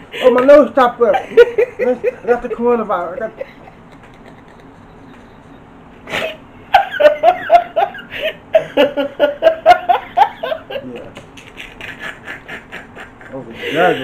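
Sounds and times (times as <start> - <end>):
woman laughing hard: 6.1 - 14.0.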